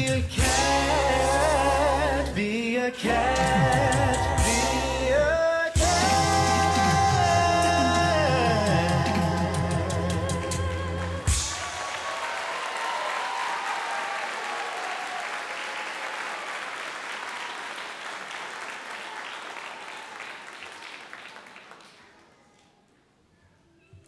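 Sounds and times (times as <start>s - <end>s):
audience applause: 10.6s - 22.4s.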